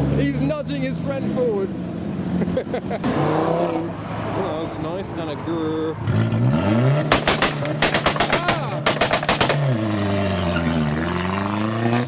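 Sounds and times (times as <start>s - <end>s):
car engine revving: 0.0s - 12.0s
exhaust pops and bangs: 7.0s - 9.8s.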